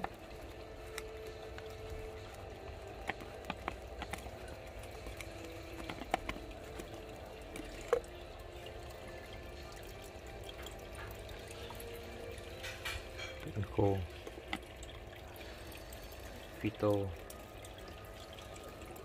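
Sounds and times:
aquarium pump trickle and hum: 0.0 - 19.0.

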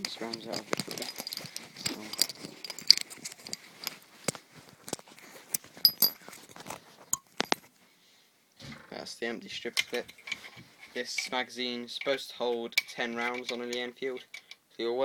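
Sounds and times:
metallic clicks of cartridges: 0.0 - 5.0, 5.8 - 6.2.

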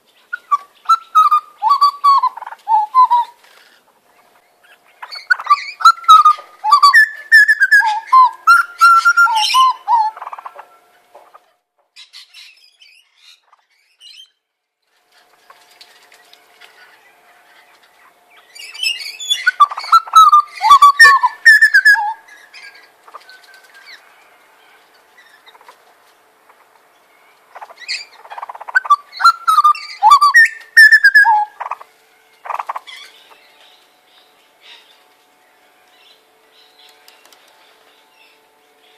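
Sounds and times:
butcherbirds fluted song: 0.0 - 38.9
quiet bird calls: 0.0 - 38.9.

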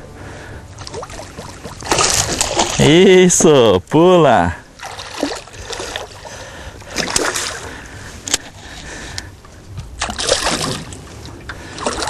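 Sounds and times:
fish thrashing and splashing: 0.8 - 3.0, 4.8 - 8.8, 10.0 - 11.0, 11.7 - 12.0
sharp knocks on boat: 1.2 - 2.7.

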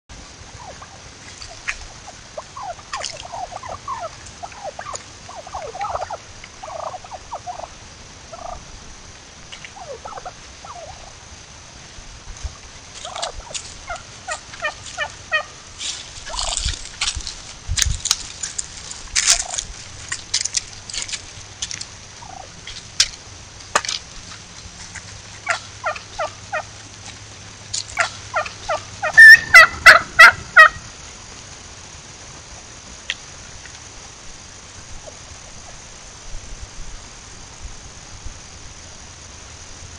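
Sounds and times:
turkey calls: 0.5 - 8.6, 9.6 - 11.2, 12.9 - 17.0, 19.2 - 19.7, 22.2 - 22.8, 24.9 - 27.0, 27.9 - 30.9
turkey yelps: 0.6 - 7.7, 8.3 - 8.6, 9.8 - 11.1, 13.0 - 15.5, 22.2 - 22.5, 25.4 - 26.7, 28.0 - 30.8.

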